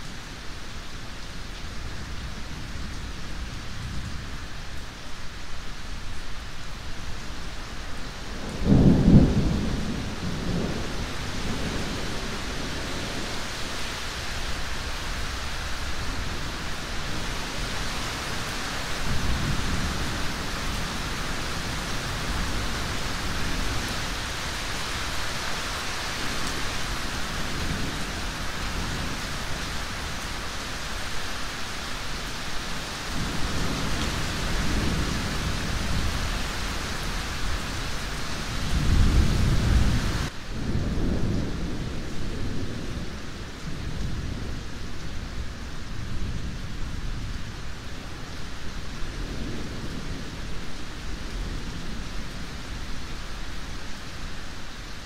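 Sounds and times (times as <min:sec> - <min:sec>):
steady rain: 0:00.0 - 0:55.0
low thunder rumbles: 0:08.3 - 0:13.7, 0:33.1 - 0:53.0.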